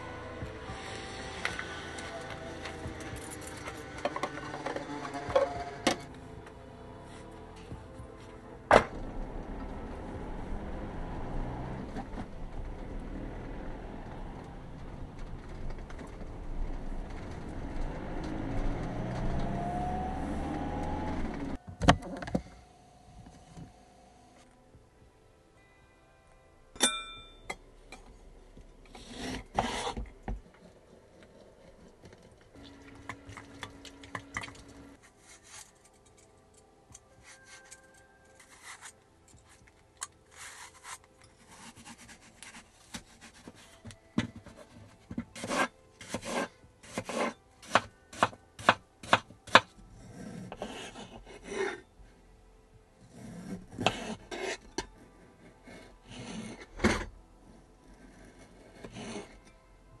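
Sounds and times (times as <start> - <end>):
knife cutting apple on wooden board: 29.0 - 30.1, 40.3 - 43.6, 45.3 - 49.7, 53.4 - 54.6
knife paring fruit skin: 40.3 - 43.8.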